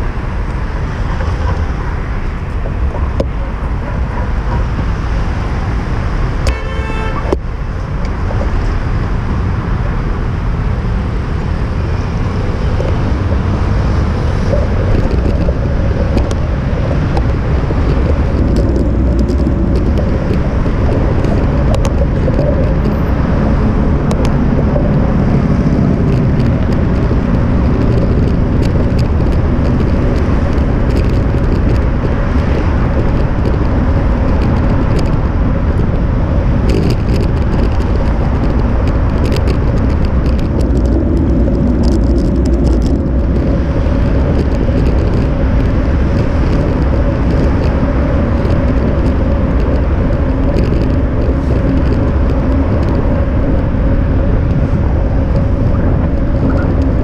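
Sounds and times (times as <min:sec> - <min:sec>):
passing road traffic: 0:00.0 - 0:57.0
wind rumbling on microphone: 0:00.0 - 0:57.0
car horn honking: 0:06.5 - 0:07.4.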